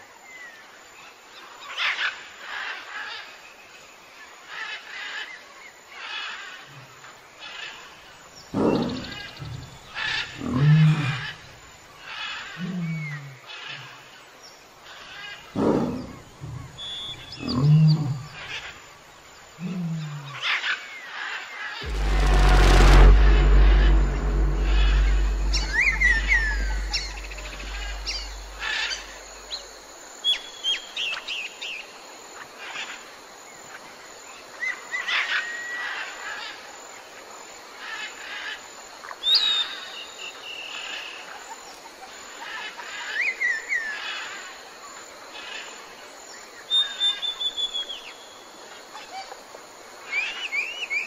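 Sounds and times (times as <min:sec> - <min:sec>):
low rumble: 0:21.8 - 0:29.3.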